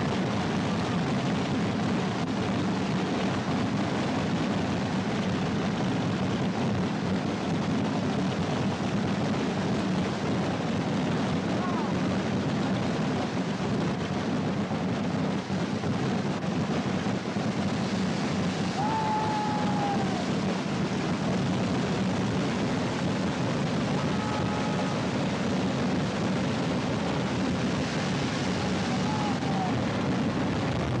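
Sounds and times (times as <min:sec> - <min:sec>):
fireworks rockets launching and bursting: 0:00.0 - 0:31.0.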